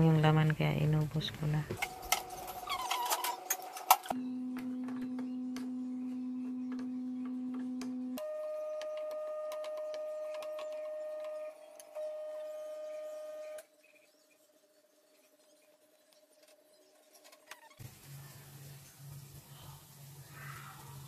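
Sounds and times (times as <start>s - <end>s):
high pure hum: 0.0s - 15.2s.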